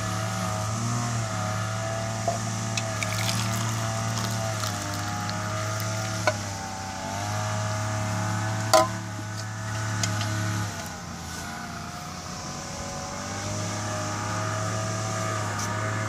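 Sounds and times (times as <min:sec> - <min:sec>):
engine drone: 0:00.0 - 0:16.0.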